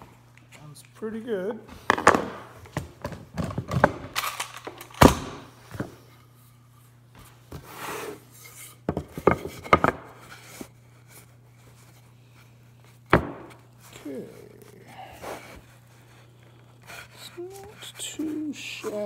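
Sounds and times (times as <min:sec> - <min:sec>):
wood scraping rub: 0:07.5 - 0:19.0.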